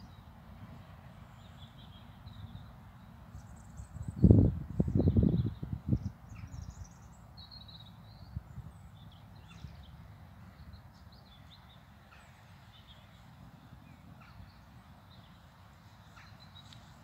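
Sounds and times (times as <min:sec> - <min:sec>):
songbirds chirping and trilling: 0:00.0 - 0:17.0.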